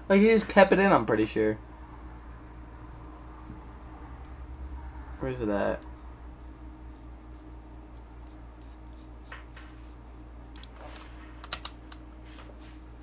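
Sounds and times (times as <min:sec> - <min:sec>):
steady low hum: 0:00.0 - 0:13.0
keyboard and mouse clicks: 0:10.5 - 0:10.8, 0:11.4 - 0:12.0.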